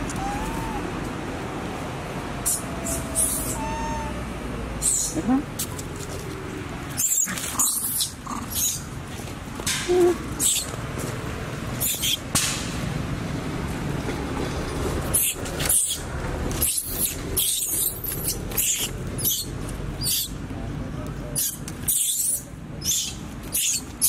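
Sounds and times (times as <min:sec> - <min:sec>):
baby monkey squealing: 0:00.1 - 0:00.9, 0:02.4 - 0:04.2, 0:04.8 - 0:05.2, 0:07.0 - 0:08.8, 0:10.4 - 0:10.7, 0:11.8 - 0:12.2, 0:15.1 - 0:20.4, 0:21.4 - 0:24.0.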